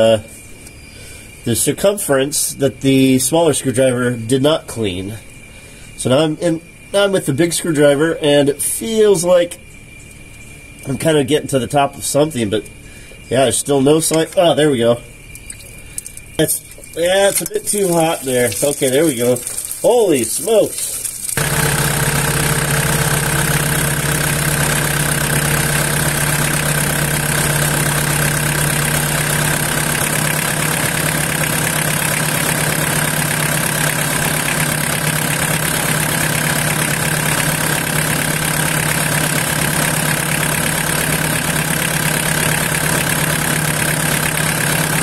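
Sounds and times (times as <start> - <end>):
engine idling: 15.1 - 45.0
running water hiss: 15.2 - 23.5.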